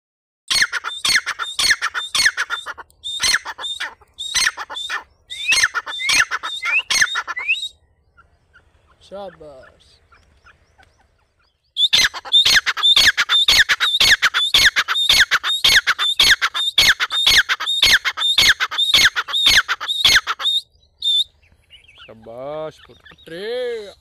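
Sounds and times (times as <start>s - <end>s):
bird calling harsh notes: 0.5s - 24.0s.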